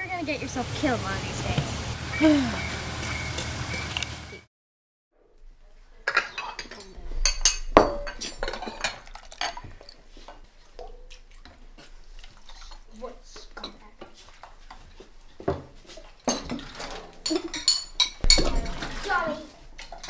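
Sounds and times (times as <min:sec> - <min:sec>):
spoon clinking on bowls and pot: 0:06.0 - 0:10.9, 0:12.4 - 0:14.8, 0:15.4 - 0:18.9
ceramic bowls clinking: 0:06.0 - 0:11.0, 0:12.4 - 0:20.0.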